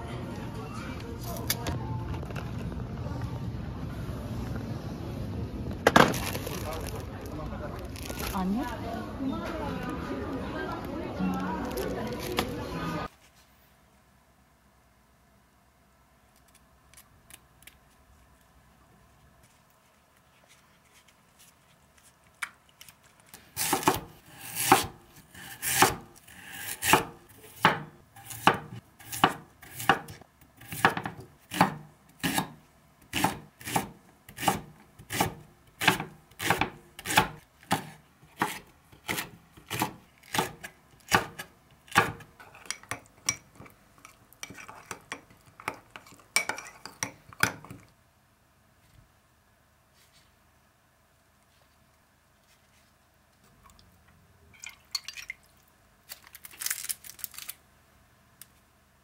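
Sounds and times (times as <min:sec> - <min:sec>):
spoon scraping ceramic cup: 0:42.4 - 0:47.2.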